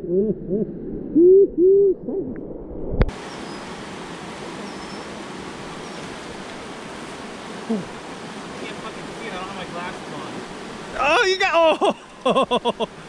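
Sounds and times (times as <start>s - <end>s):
river water running over rocks: 3.1s - 13.0s.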